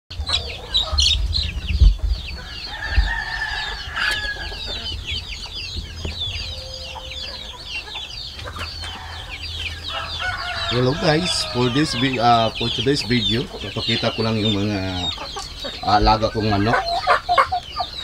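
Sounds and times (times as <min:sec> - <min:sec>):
chickens peeping: 0:00.1 - 0:18.0
low thumps: 0:00.9 - 0:03.5
chicken drawn-out call: 0:02.3 - 0:18.0.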